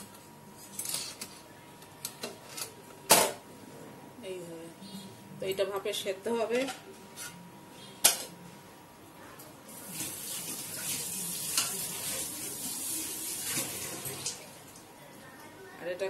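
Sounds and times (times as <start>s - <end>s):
water boiling and bubbling: 9.6s - 15.0s.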